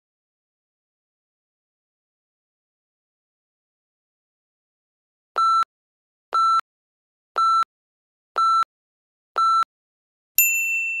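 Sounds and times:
timer short electronic beeps: 5.4s - 5.7s, 6.4s - 6.6s, 7.4s - 7.7s, 8.4s - 8.7s, 9.4s - 9.7s.

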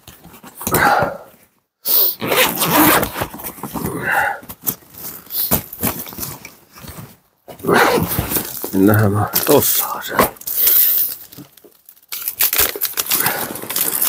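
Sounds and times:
backpack zipper: 2.0s - 4.0s, 7.6s - 8.6s.

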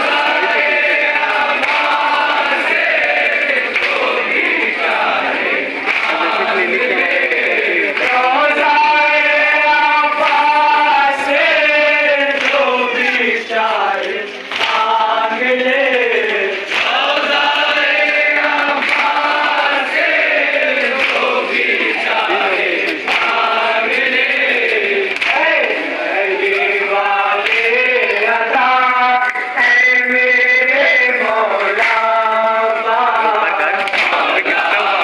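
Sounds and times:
men chanting a lament: 0.0s - 35.0s
hands slapping chests: 1.2s - 2.3s, 3.1s - 4.7s, 5.8s - 6.4s, 12.4s - 13.2s, 14.0s - 15.1s, 16.7s - 19.6s, 20.8s - 22.2s, 22.8s - 24.0s, 24.6s - 25.4s, 33.7s - 35.0s.

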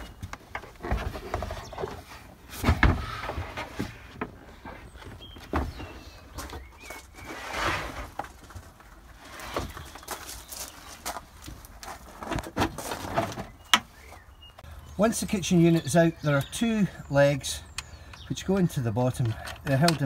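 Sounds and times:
wooden unit knocks and clunks: 0.0s - 6.8s.

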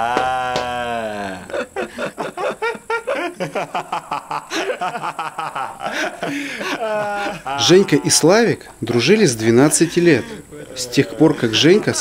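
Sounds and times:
man laughing: 0.0s - 12.0s.

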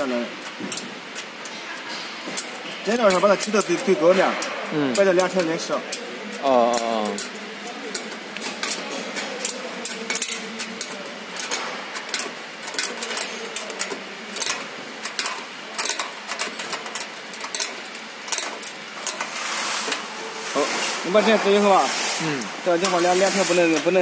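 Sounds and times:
wrench clicking on a nut: 9.4s - 19.2s.

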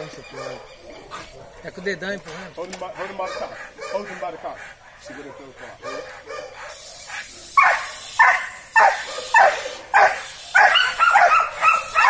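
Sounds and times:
dog barking sharply: 7.6s - 12.0s.

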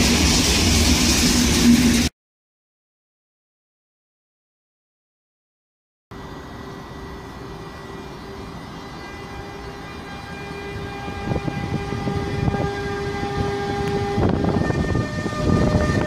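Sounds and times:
electric locomotive whine and rumble: 0.0s - 2.1s, 6.1s - 16.0s.

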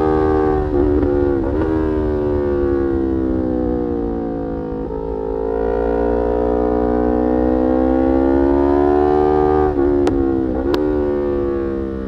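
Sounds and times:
low wind rumble: 0.0s - 8.3s
motorcycle engine revving: 0.0s - 12.0s.

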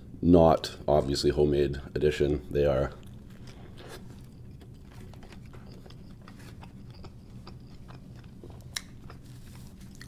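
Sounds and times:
faint low hum: 0.0s - 10.0s
close chewing mouth clicks: 4.2s - 10.0s.

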